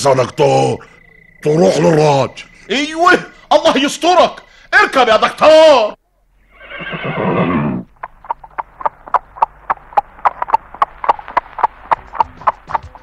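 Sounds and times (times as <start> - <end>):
mule whinnying: 6.4 - 9.2
hooves clip-clopping: 7.8 - 13.0.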